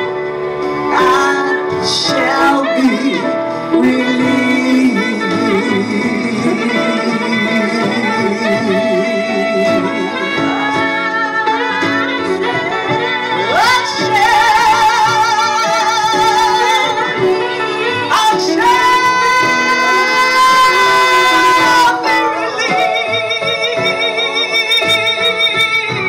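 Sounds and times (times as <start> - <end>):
woman singing high notes: 13.4 - 25.3.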